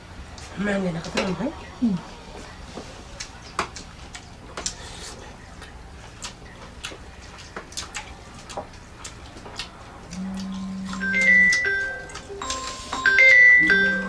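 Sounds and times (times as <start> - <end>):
low steady hum: 0.0 - 14.0
chewing and smacking: 2.3 - 13.9.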